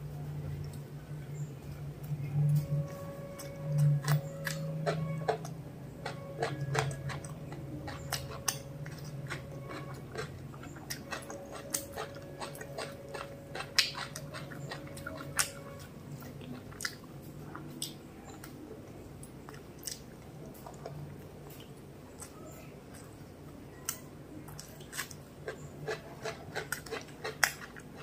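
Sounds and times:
steady low hum: 0.0 - 28.0
close-miked chewing: 0.4 - 28.0.

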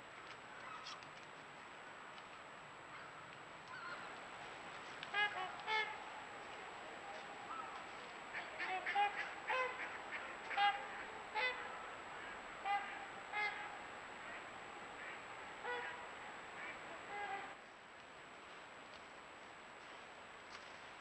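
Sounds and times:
steady hiss: 0.0 - 21.0
geese honking: 3.7 - 17.6.

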